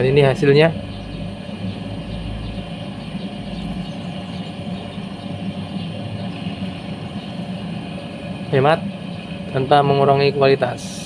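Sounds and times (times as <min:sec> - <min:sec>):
sharpening machine motor humming: 0:00.0 - 0:10.6.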